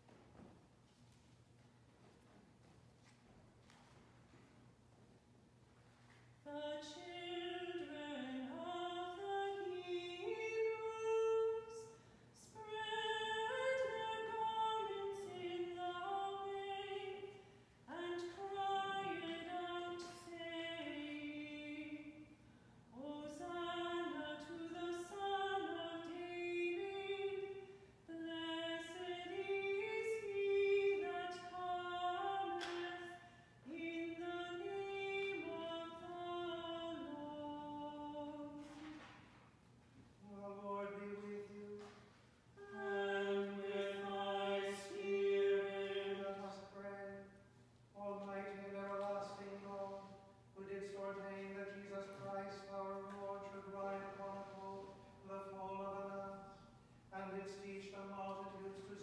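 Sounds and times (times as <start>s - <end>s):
unaccompanied liturgical singing: 6.7s - 22.3s, 42.6s - 47.4s, 48.0s - 59.0s.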